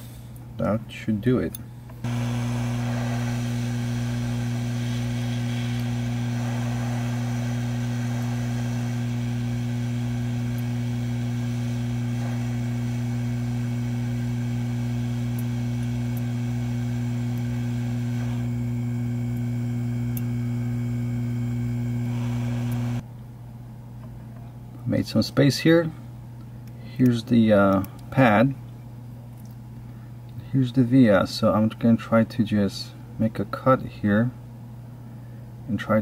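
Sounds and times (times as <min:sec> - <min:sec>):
faint air hiss: 0:00.0 - 0:14.5
blower humming: 0:01.9 - 0:23.0.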